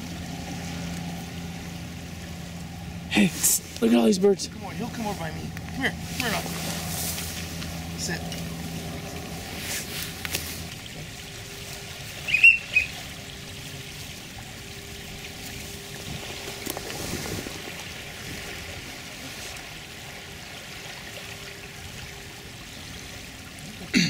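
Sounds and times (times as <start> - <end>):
small waves lapping at shore: 0.0 - 24.0
high-pitched whistled chirps: 12.2 - 13.0.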